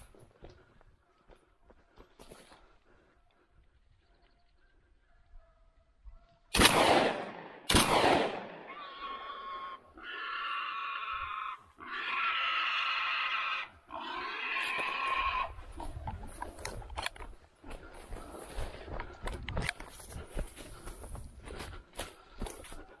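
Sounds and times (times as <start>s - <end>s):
shotgun shots: 6.5s - 8.7s
wild boar squealing: 8.7s - 15.7s.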